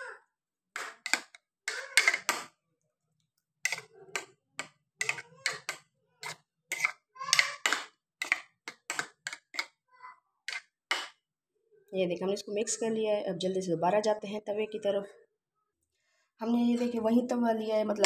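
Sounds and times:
metal spoon scraping a bowl: 0:00.8 - 0:02.5, 0:03.6 - 0:09.7.

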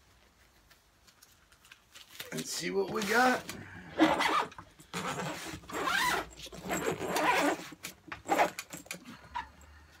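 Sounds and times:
suitcase zipper being pulled open: 0:04.0 - 0:08.8.

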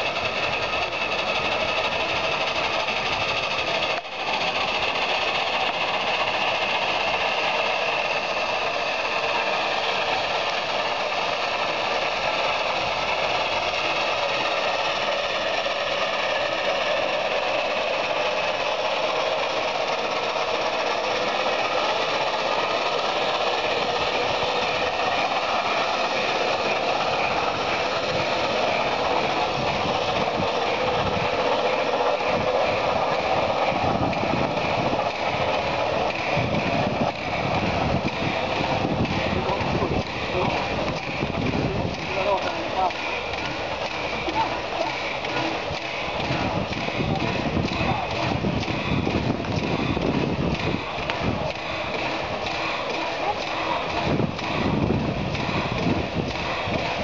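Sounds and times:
steam hissing from locomotive: 0:00.0 - 0:57.0
low rumbling knocks of turntable: 0:45.3 - 0:57.0.

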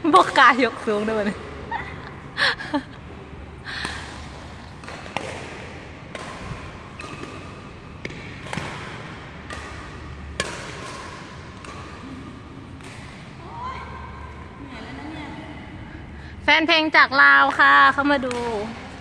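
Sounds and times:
shuttlecock hit with rackets: 0:03.8 - 0:12.2, 0:12.8 - 0:13.4.

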